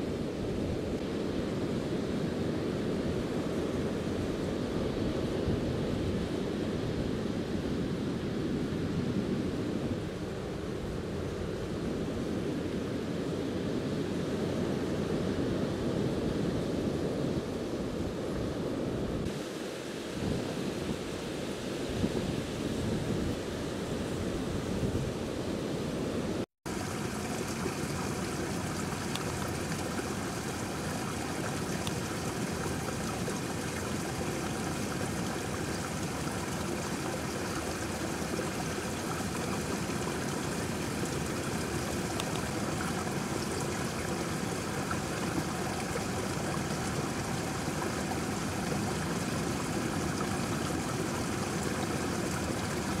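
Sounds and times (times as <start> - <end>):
flowing water rushing: 26.7 - 53.0.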